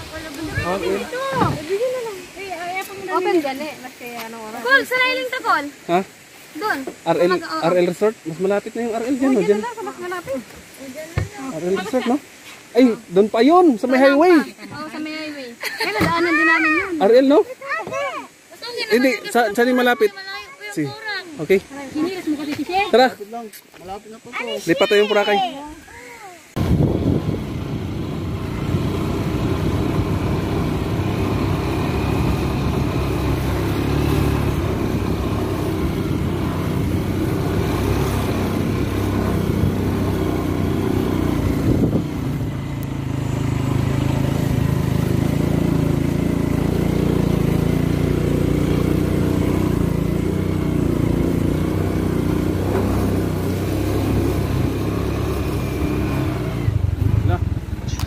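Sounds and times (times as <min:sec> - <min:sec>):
small motorcycle engine running: 0:00.0 - 0:02.1, 0:26.6 - 0:58.0.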